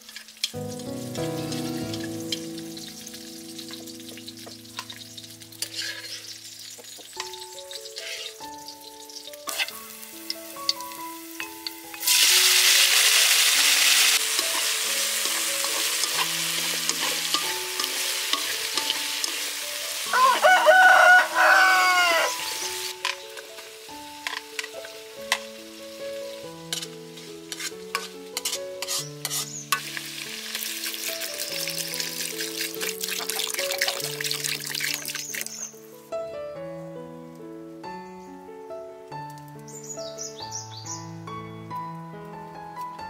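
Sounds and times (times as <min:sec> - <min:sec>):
meat sizzling in hot oil: 0:00.0 - 0:35.9
chopsticks clicking on pan: 0:16.9 - 0:19.4
rooster crowing: 0:20.1 - 0:22.7.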